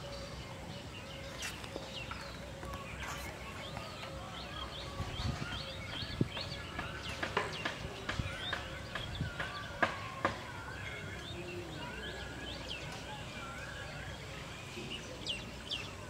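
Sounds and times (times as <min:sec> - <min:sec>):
birds chirping and whistling: 0:00.0 - 0:16.0.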